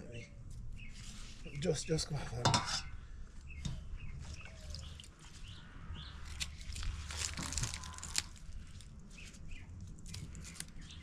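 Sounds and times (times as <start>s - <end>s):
birds chirping: 0.0s - 11.0s
leaves crinkling and tearing: 4.2s - 11.0s.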